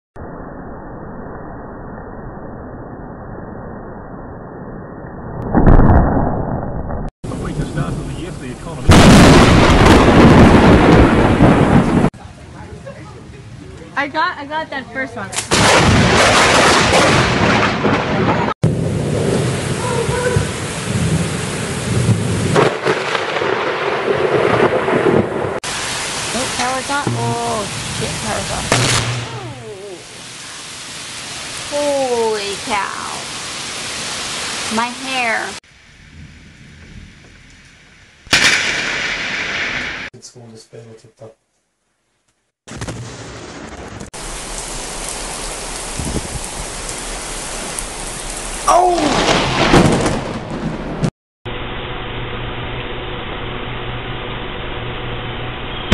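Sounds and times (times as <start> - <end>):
wind: 0.2 - 41.6, 42.6 - 55.9
sharp thunder crack: 5.5 - 12.1, 15.4 - 29.6, 38.3 - 40.2, 42.7 - 51.1
low rumbling thunder: 7.3 - 12.1, 15.5 - 25.6, 43.6 - 51.1
heavy rain hissing: 7.3 - 14.0, 18.7 - 23.4, 24.5 - 37.5, 43.2 - 49.7.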